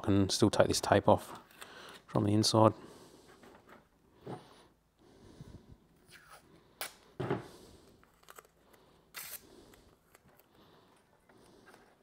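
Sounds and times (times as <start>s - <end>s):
tape ripping: 8.1s - 9.5s.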